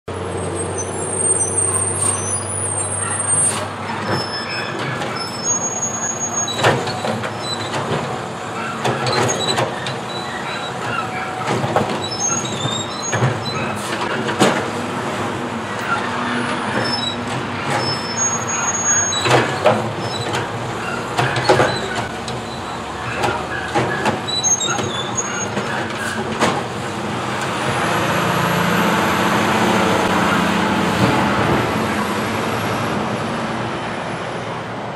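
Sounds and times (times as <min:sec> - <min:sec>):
garbage truck engine running: 0:02.9 - 0:34.0
carts banging into hopper: 0:06.4 - 0:14.8, 0:15.8 - 0:22.4, 0:23.0 - 0:27.7.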